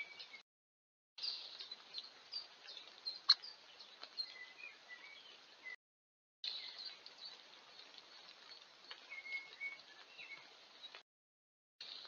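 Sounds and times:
birds calling and chirping: 0.0s - 0.4s, 1.2s - 5.8s, 6.4s - 11.0s.

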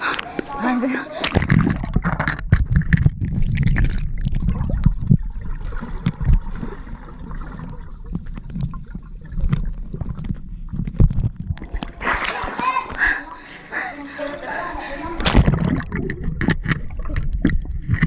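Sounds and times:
underwater rumble and bubbling: 1.2s - 12.2s, 15.2s - 18.0s.

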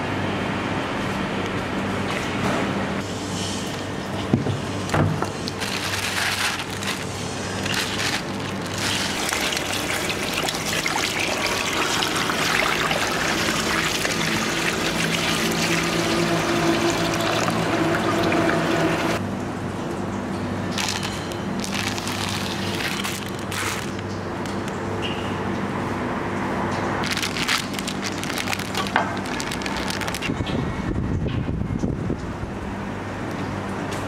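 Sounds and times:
water splashing into steel bowl: 8.3s - 19.2s.

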